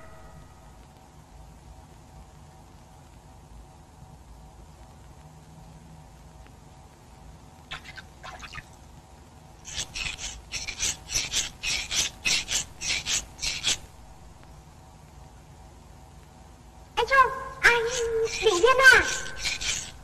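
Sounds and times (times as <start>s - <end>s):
hands rubbing against stone: 9.7s - 13.9s, 17.9s - 20.0s.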